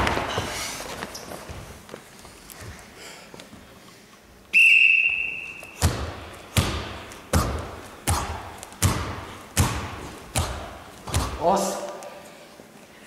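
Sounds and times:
whistle blowing: 4.5 - 5.8
sharp echoing slaps: 5.6 - 12.0.

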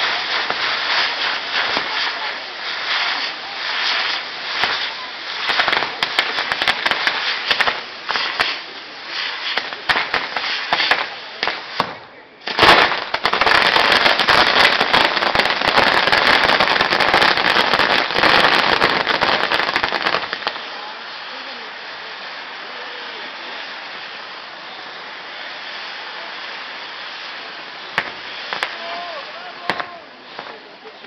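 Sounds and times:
firecrackers crackling and popping: 0.0 - 31.0
loud firework burst: 0.0 - 31.0.

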